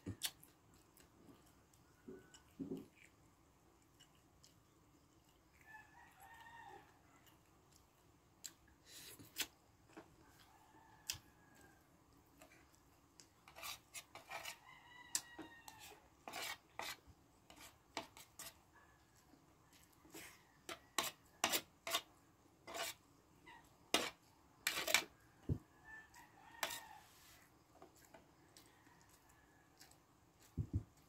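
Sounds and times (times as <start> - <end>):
rooster crowing: 5.7 - 7.1, 10.3 - 11.9, 14.4 - 16.1, 25.4 - 27.4.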